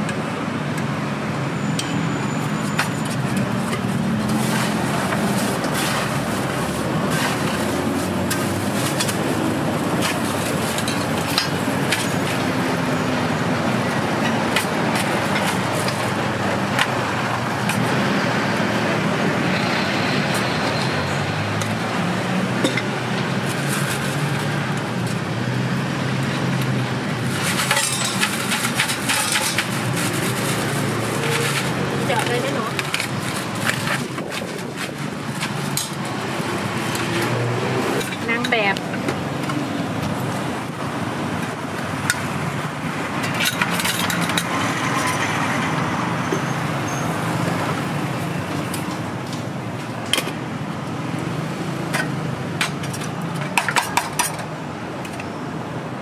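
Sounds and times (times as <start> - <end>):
traffic and street noise: 0.0 - 56.0
metal spoons clinking on cups: 27.5 - 29.7.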